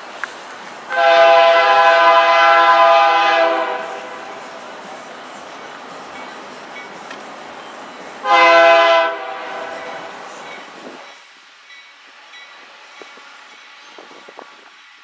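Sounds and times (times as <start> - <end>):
locomotive air horn blast: 0.9 - 4.4, 8.2 - 10.1.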